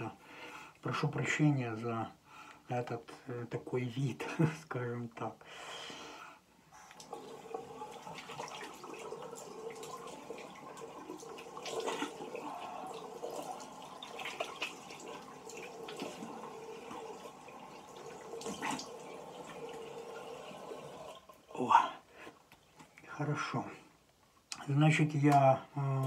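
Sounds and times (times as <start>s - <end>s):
water running from sink tap: 7.0s - 21.5s
water splashing on face: 8.0s - 17.2s, 18.1s - 19.8s.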